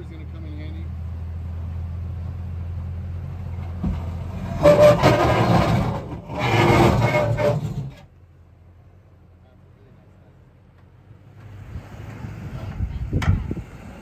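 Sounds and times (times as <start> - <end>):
truck engine running low: 0.0 - 9.3, 10.5 - 14.0
truck scraping on rock: 3.6 - 8.1.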